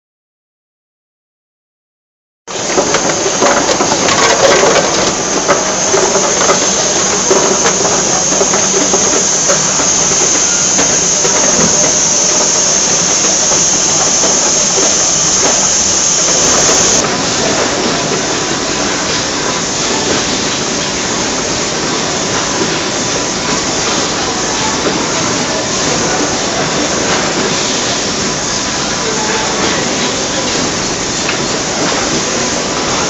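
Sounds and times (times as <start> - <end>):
machinery hissing: 2.5 - 17.5.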